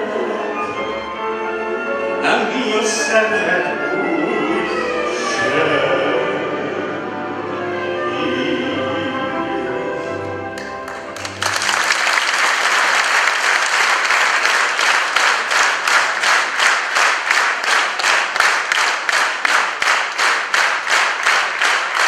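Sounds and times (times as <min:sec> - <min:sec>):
audience applause: 0:10.6 - 0:22.0
rhythmic clapping in unison: 0:10.6 - 0:22.0.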